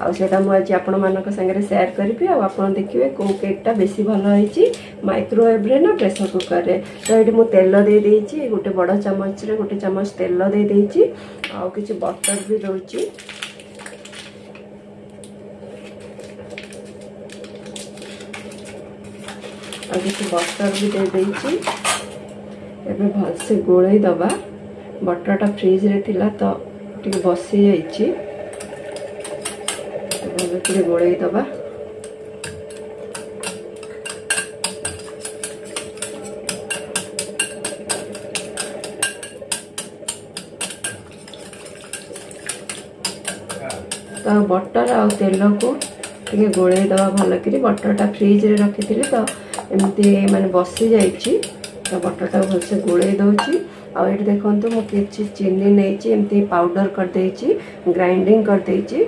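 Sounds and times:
steady low hum: 0:00.0 - 0:59.0
wrapper paper crinkling: 0:13.0 - 0:14.6, 0:15.8 - 0:21.8
whisk clicking against glass bowl: 0:32.7 - 0:53.6.

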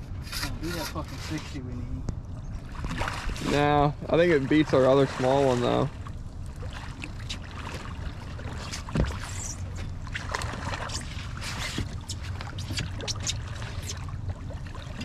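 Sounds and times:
steady low hum: 0:00.0 - 0:15.0
water splashing against a boat: 0:00.0 - 0:15.0.

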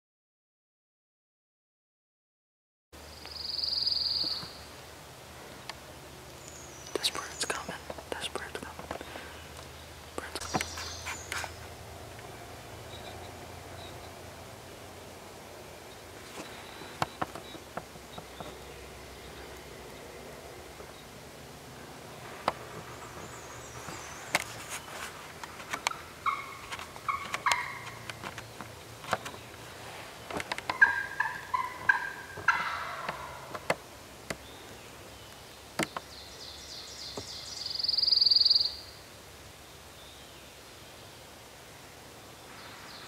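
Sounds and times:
turkey yelps: 0:25.9 - 0:28.0, 0:30.7 - 0:33.6.

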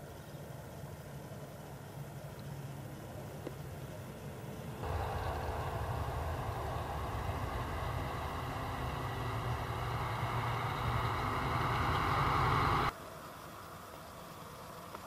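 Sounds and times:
passing vehicle rumble: 0:04.8 - 0:12.9.

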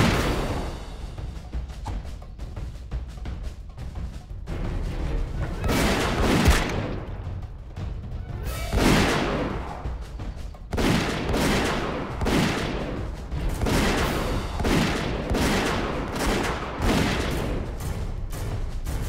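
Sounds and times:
music: 0:00.0 - 0:19.0
heavy shot-like bangs: 0:05.6 - 0:07.2.

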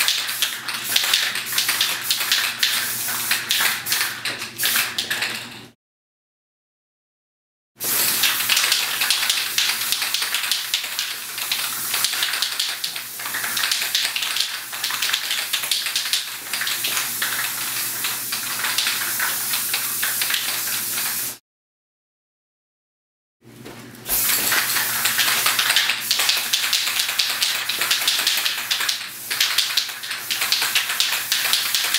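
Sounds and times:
spray paint can hissing: 0:00.0 - 0:05.1, 0:07.8 - 0:21.4, 0:24.1 - 0:31.9.

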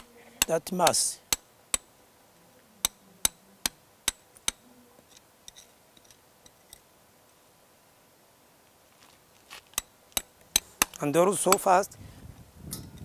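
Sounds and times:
hammer striking chisel: 0:00.0 - 0:01.9, 0:02.8 - 0:04.6, 0:09.8 - 0:11.7.

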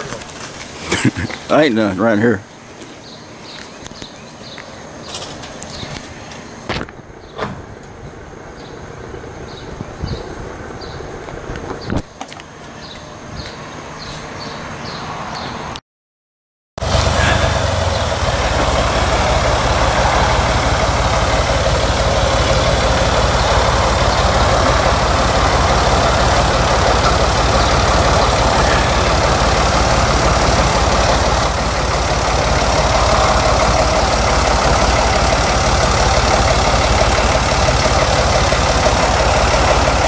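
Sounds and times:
tractor engine running: 0:16.8 - 0:40.0.

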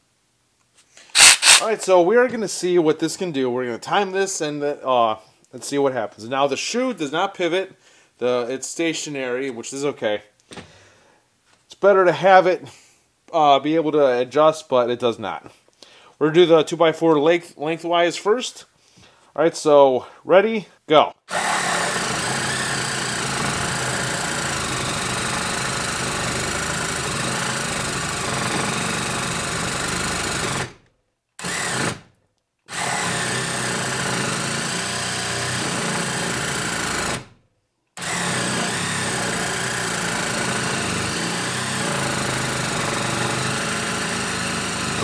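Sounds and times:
reciprocating saw cutting wood: 0:01.1 - 0:01.7, 0:21.3 - 0:30.7, 0:32.7 - 0:37.2, 0:38.0 - 0:45.0.

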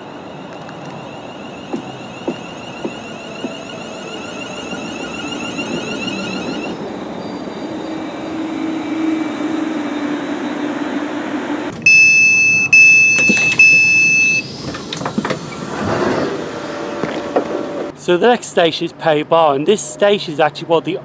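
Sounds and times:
electric train humming: 0:00.0 - 0:17.9
door warning beeps: 0:00.4 - 0:06.7, 0:11.8 - 0:14.5.

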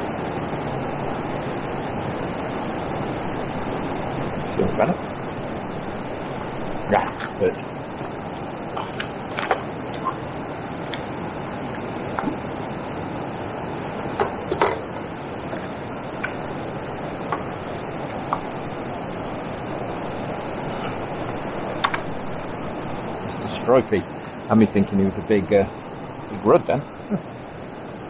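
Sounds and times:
water rushing over a weir: 0:00.0 - 0:26.8.

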